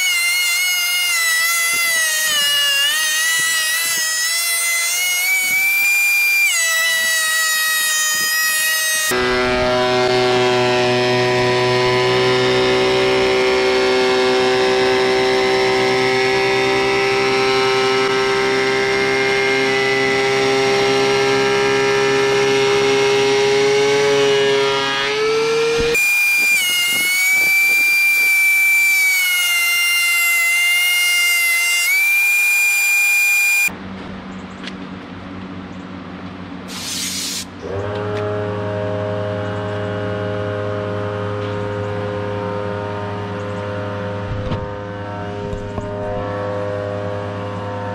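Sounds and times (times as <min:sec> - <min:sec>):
shrill stepping tone: 0:00.0 - 0:10.5, 0:25.5 - 0:33.7
thickness planer whine: 0:00.0 - 0:33.8, 0:36.6 - 0:47.9
short hiss: 0:36.7 - 0:37.5.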